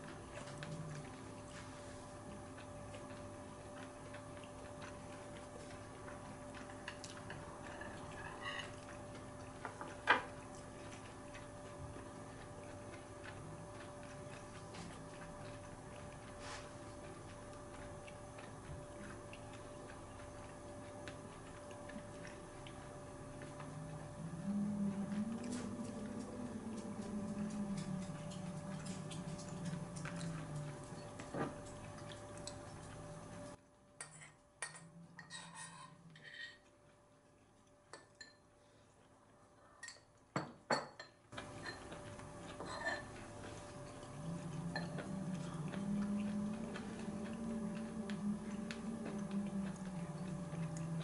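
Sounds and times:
low room hum: 0.0s - 51.0s
chopsticks clinking on bowls: 6.6s - 8.9s, 39.8s - 45.8s.

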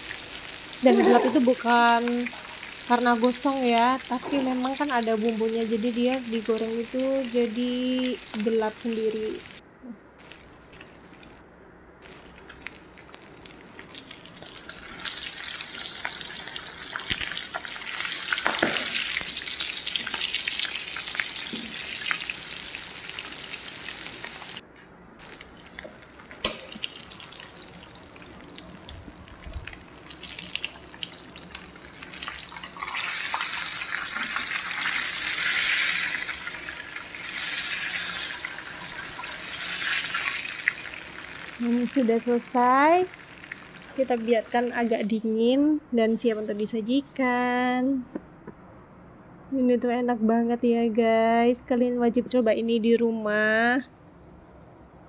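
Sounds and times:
meat sizzling in hot oil: 0.0s - 9.6s, 12.0s - 24.6s, 25.2s - 45.0s.

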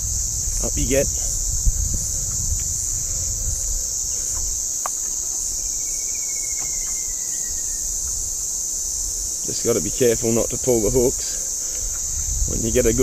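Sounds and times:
insects droning: 0.0s - 13.0s
faint ticks: 4.1s - 5.5s
faint thin whistle: 5.8s - 7.8s.

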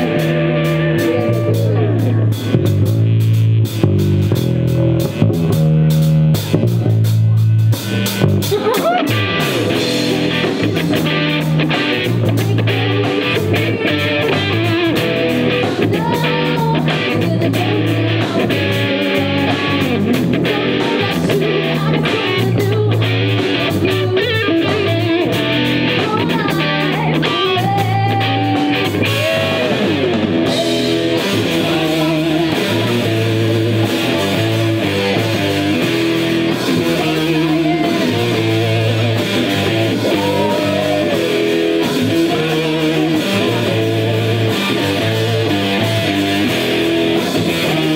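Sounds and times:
bass guitar: 0.0s - 47.9s
drum kit: 0.0s - 47.9s
electric guitar: 0.0s - 47.9s
woman singing: 12.2s - 29.9s, 36.6s - 39.2s, 39.9s - 42.6s.

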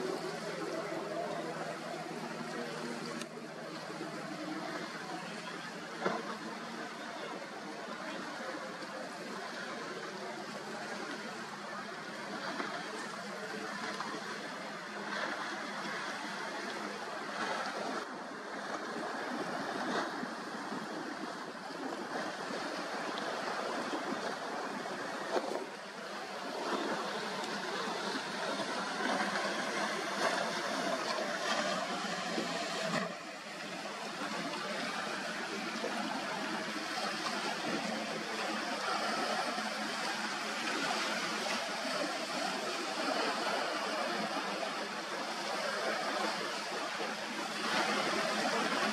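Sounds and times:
hull spray and churning water: 0.0s - 48.9s
speedboats passing at speed: 0.0s - 48.9s.

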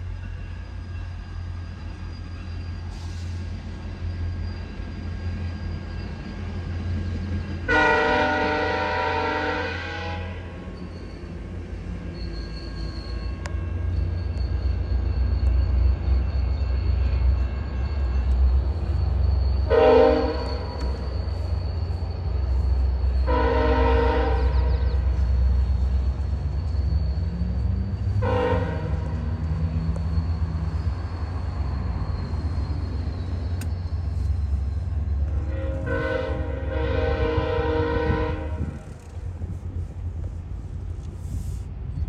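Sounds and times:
train running rumble: 0.0s - 42.0s
train horn blasts: 7.6s - 10.7s, 19.6s - 21.7s, 22.4s - 26.1s, 27.7s - 29.8s, 35.2s - 39.6s.

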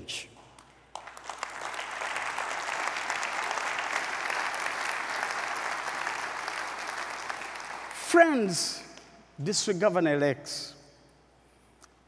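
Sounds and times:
large audience applauding: 0.5s - 8.4s.

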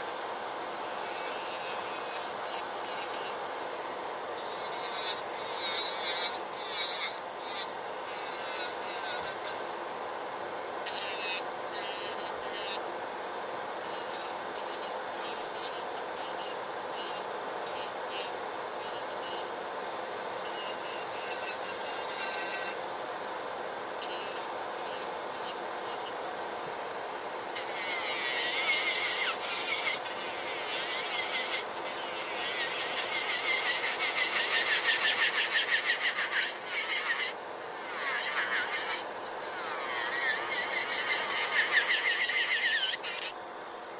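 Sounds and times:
nail drill grinding nails: 27.6s - 43.4s.

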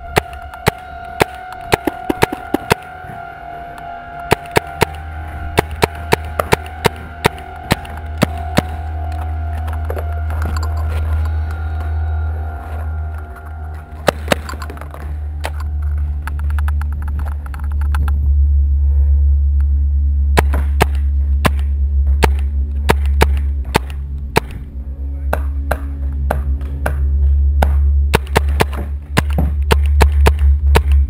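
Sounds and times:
music with low drone: 0.0s - 31.0s
paintball markers firing: 0.1s - 2.8s, 4.3s - 5.0s, 20.4s - 24.6s, 27.6s - 31.0s.

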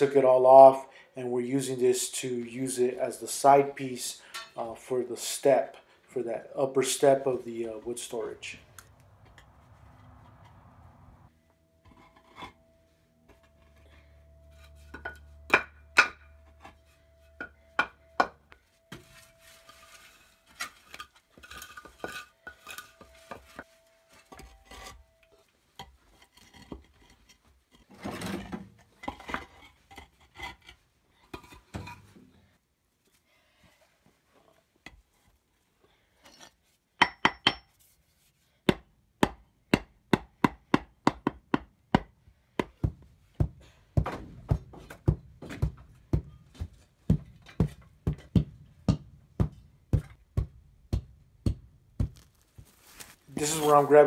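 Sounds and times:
pavers clinking and knocking: 42.8s - 50.2s
scraping of pavers: 52.0s - 54.0s.

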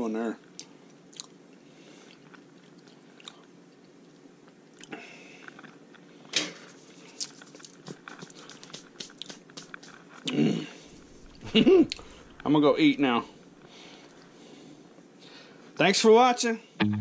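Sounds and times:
chewing crisp pizza crust: 0.5s - 1.4s, 2.0s - 6.1s, 6.9s - 12.4s.

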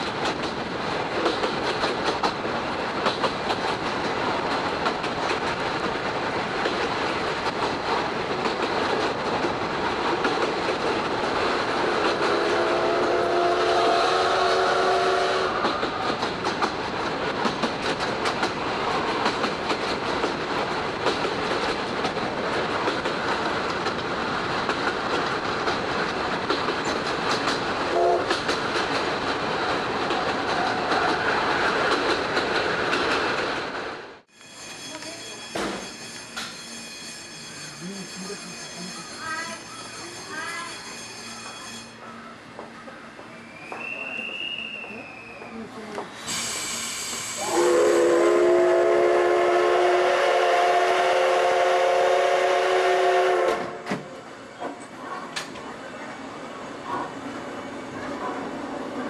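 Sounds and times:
wheels clicking over rail joints: 0.0s - 12.4s, 15.6s - 33.9s
steam locomotive whistle: 12.2s - 16.0s, 27.9s - 28.2s, 43.5s - 45.5s, 46.3s - 53.9s.

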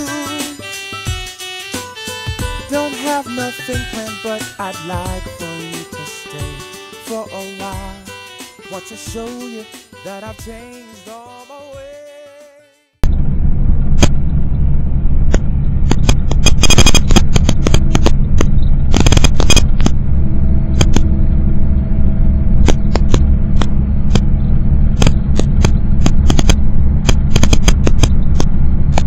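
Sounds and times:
road and engine rumble: 13.0s - 29.0s
sharp clicks and rattles: 15.3s - 20.0s, 20.7s - 21.2s, 22.6s - 24.4s, 25.0s - 29.0s.

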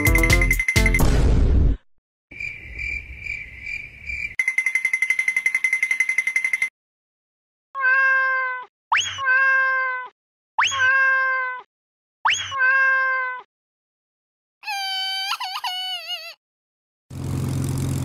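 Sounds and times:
cartoon cat meowing: 7.8s - 11.7s, 12.3s - 13.5s, 14.6s - 16.4s.

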